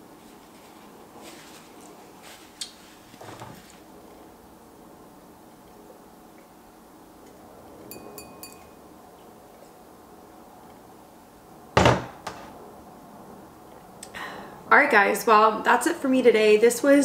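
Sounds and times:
wine glass clinking: 0:07.9 - 0:08.8.

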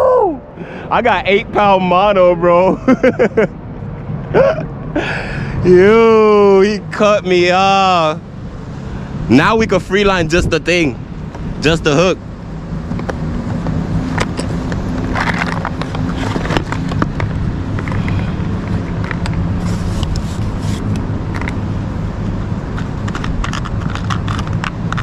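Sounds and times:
low engine hum: 0:00.0 - 0:25.0
short scrapes: 0:19.6 - 0:21.0
plastic box clicking and rattling: 0:22.8 - 0:25.0.

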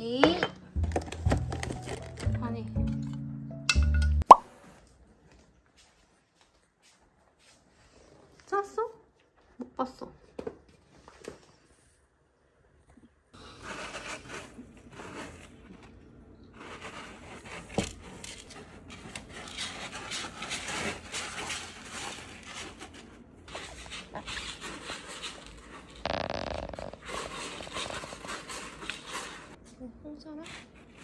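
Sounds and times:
kittens scratching in cat litter: 0:13.4 - 0:29.6, 0:30.2 - 0:31.0.

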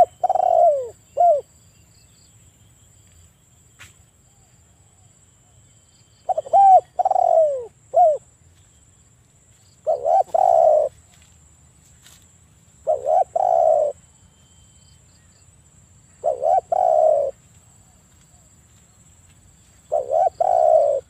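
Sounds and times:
dove cooing: 0:00.0 - 0:01.5, 0:06.3 - 0:08.3, 0:09.8 - 0:11.0, 0:12.8 - 0:14.0, 0:16.2 - 0:17.4, 0:19.9 - 0:21.0.

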